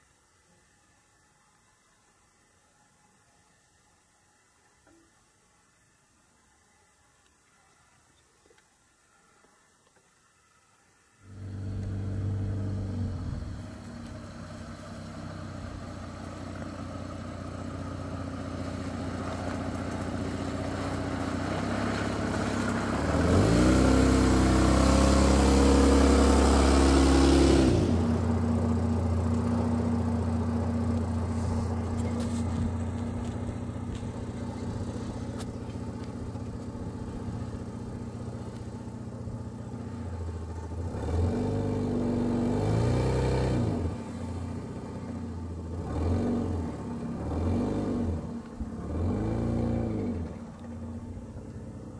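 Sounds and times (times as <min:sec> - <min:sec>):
truck engine revving: 0:11.3 - 0:16.3, 0:17.9 - 0:29.9, 0:40.6 - 0:51.1.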